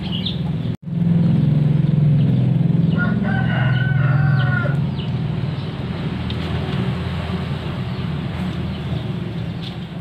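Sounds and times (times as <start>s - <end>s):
rooster crowing: 2.9s - 4.9s.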